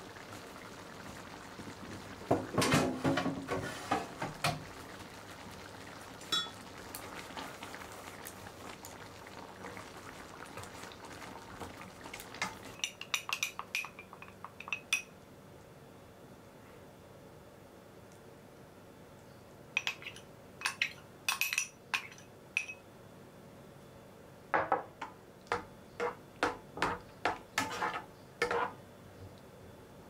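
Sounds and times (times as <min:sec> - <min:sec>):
glass bowl clinks: 0:06.3 - 0:06.6, 0:20.7 - 0:22.8
spatula scraping a pan: 0:27.6 - 0:28.8.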